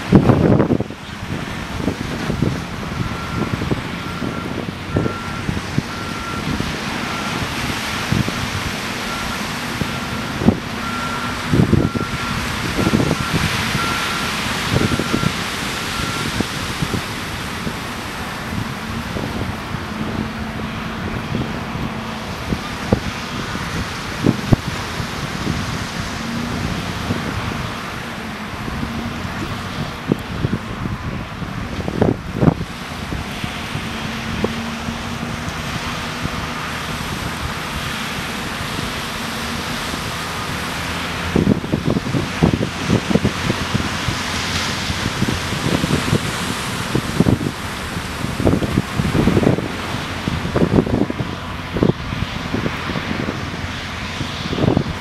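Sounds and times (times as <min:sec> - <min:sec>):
diesel engine running: 0:00.0 - 0:55.0
wind buffeting microphone: 0:00.0 - 0:55.0
backup alarm beeping: 0:03.0 - 0:08.3, 0:09.0 - 0:17.0.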